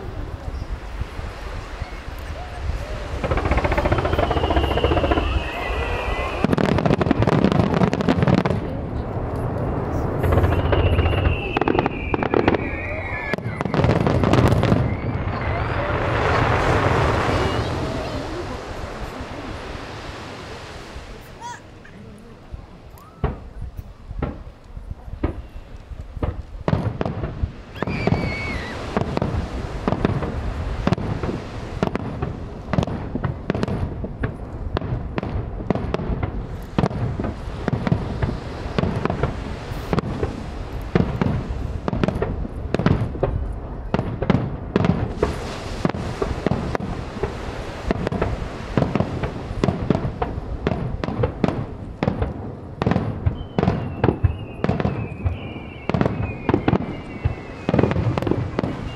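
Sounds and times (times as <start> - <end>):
fireworks booming: 0.0 - 21.6, 23.1 - 58.9
firework whistle: 1.5 - 7.0, 10.0 - 18.5, 27.6 - 29.8, 53.2 - 58.9.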